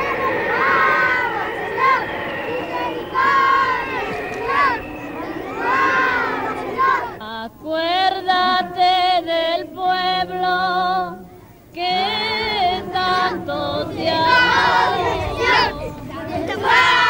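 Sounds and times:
children singing a chant: 0:00.0 - 0:07.3, 0:11.8 - 0:17.0.

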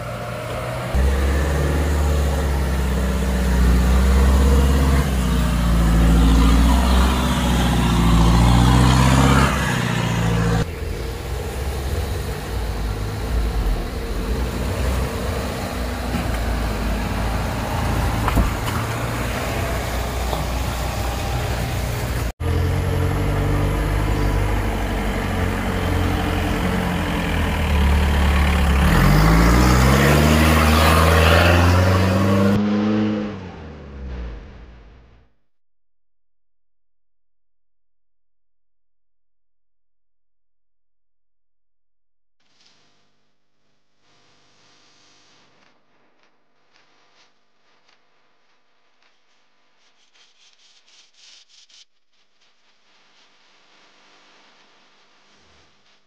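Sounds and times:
off-road vehicle engine under load: 0:00.0 - 0:35.4.

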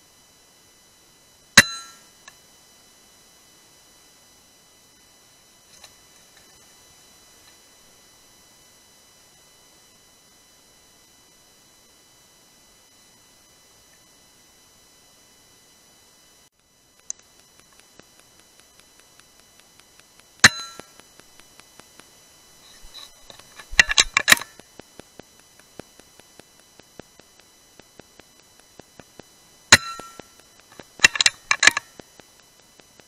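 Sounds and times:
metallic clicks of rifle action: 0:22.7 - 0:24.6, 0:29.7 - 0:32.0.

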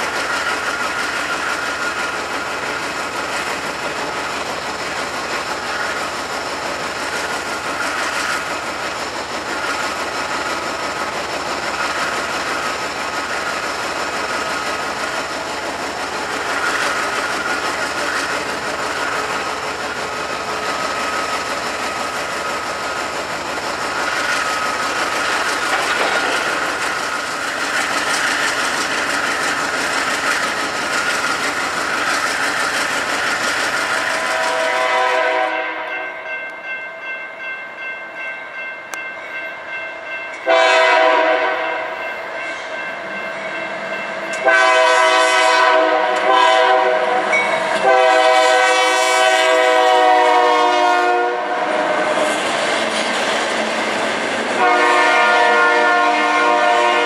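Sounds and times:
freight train wheels rumbling: 0:00.0 - 0:57.0
locomotive air horn blasts: 0:34.2 - 0:36.0, 0:40.4 - 0:41.9, 0:44.4 - 0:51.7, 0:54.6 - 0:57.0.

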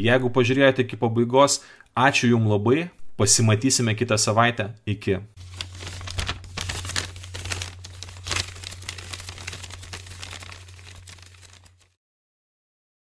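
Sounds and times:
dense crackling and crinkling: 0:05.4 - 0:12.0.

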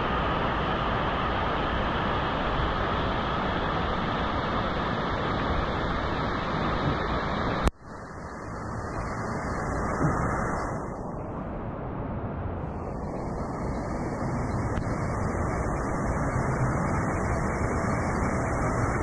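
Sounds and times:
rushing choppy water: 0:12.7 - 0:19.0.

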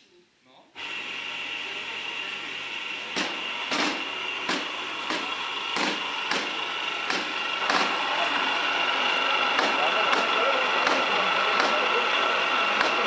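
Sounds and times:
machine whining: 0:00.8 - 0:13.0
sharp knocks: 0:03.2 - 0:08.0, 0:09.6 - 0:11.8.

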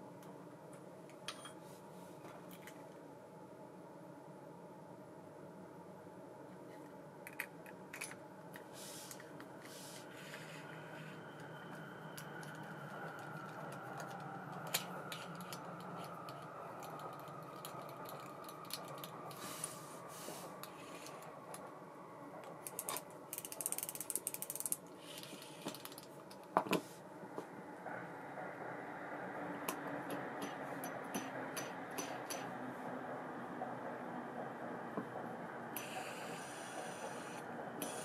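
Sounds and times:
fishing reel mechanism clicks: 0:22.7 - 0:26.0
rapid ratcheting clicks: 0:22.7 - 0:26.1.

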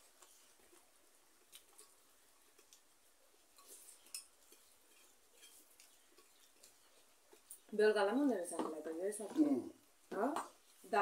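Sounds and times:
eating by hand from a plate: 0:00.0 - 0:07.7.

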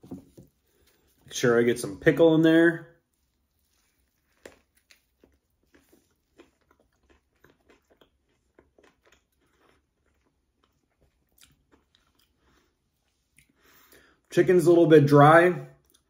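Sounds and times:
chewing: 0:03.2 - 0:13.9.

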